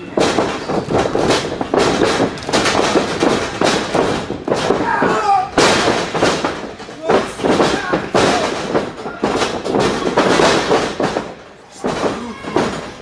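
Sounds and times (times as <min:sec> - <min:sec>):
bodies slamming onto canvas: 0:00.1 - 0:12.9
person shouting: 0:12.1 - 0:12.8.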